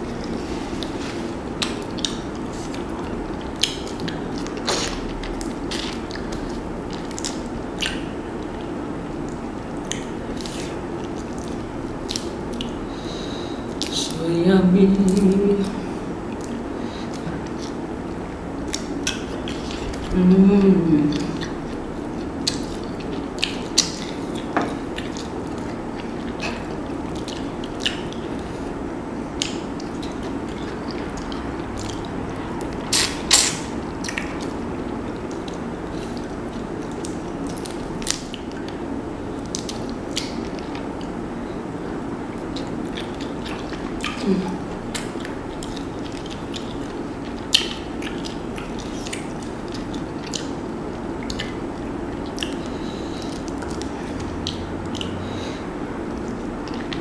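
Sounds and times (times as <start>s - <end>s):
wet chewing smacks: 0.2s - 12.9s, 21.0s - 41.2s, 42.3s - 57.0s
person humming mm: 44.2s - 44.7s.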